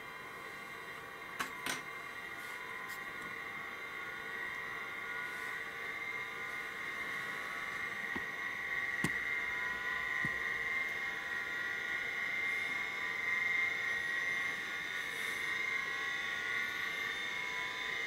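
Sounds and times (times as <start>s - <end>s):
gyro high whine: 0.0s - 18.0s.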